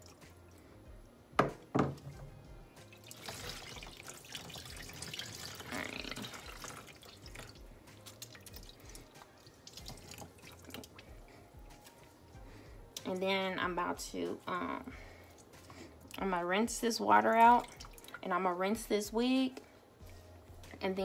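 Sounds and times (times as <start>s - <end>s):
water splashing and dripping: 2.8s - 11.9s, 17.2s - 18.3s.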